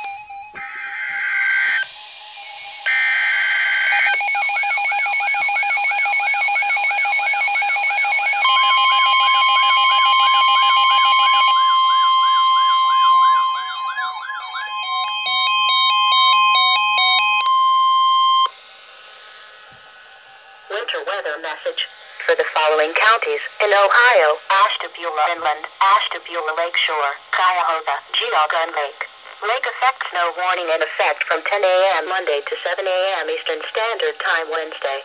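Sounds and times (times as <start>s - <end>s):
steady warning alarm tone: 0.0s - 27.4s
warbling electronic alarms: 0.0s - 27.4s.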